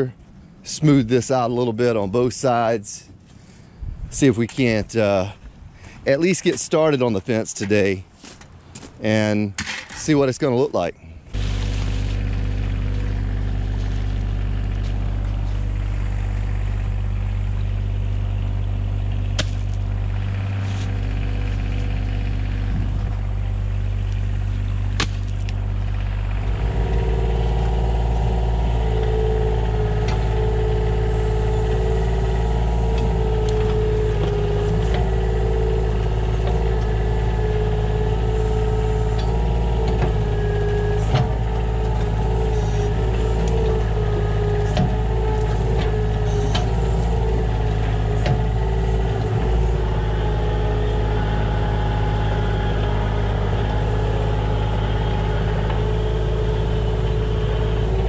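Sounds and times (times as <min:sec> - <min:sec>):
steady whine: 0:00.0 - 0:58.0
vehicle engine running: 0:11.2 - 0:58.0.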